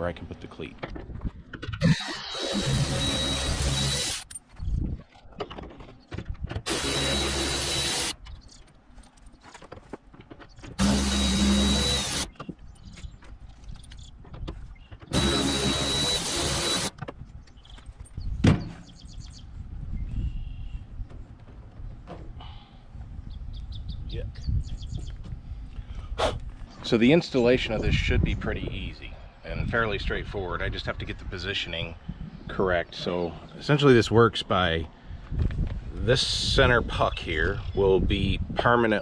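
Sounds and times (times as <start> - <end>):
power ratchet whining: 1.7 - 4.4, 6.5 - 8.4, 10.6 - 12.6, 15.1 - 17.1.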